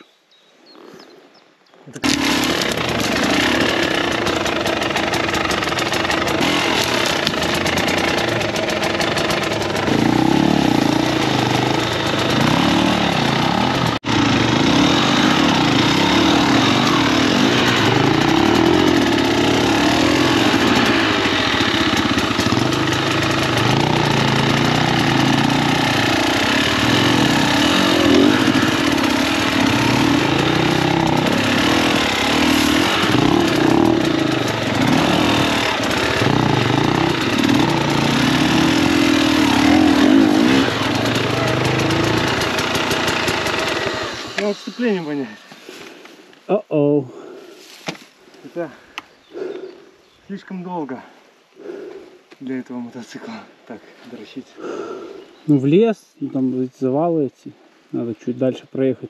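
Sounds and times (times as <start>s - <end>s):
dirt bike engine revving: 2.0s - 45.4s.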